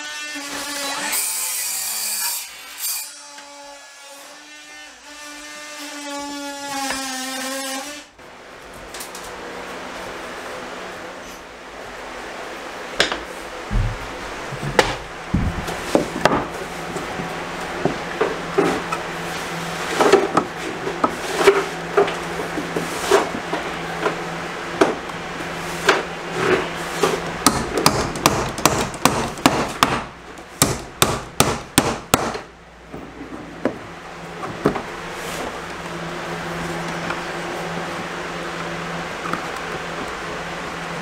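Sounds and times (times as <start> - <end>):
hammer striking nails: 27.4 - 32.5.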